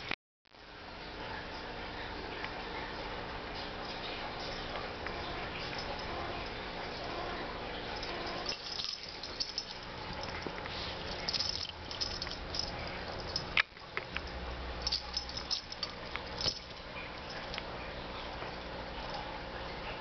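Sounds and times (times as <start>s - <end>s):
kitten scrabbling and scratching: 8.0s - 17.6s.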